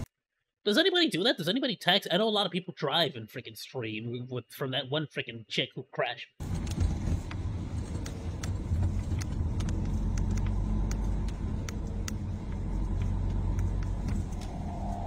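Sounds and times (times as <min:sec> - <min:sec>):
small clicks and rattles: 0:06.4 - 0:14.5
car engine and road noise: 0:06.4 - 0:15.0
high hum: 0:06.6 - 0:15.0.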